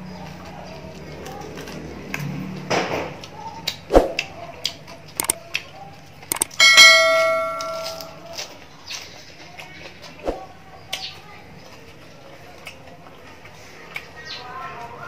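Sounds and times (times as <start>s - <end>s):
chewing: 0.2s - 6.6s, 8.2s - 15.0s
lettuce tearing and crunching: 0.9s - 2.4s
sharp clicks: 5.2s - 5.4s, 6.3s - 8.1s
bell-like chime: 6.3s - 8.2s.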